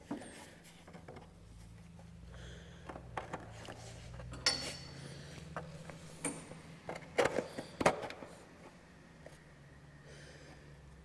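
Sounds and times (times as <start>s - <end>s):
metal clinks and knocks: 4.3s - 5.0s.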